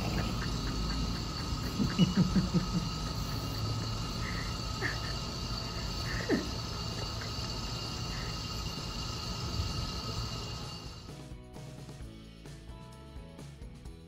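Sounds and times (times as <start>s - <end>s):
saliva ejector sucking hiss: 0.0s - 11.2s.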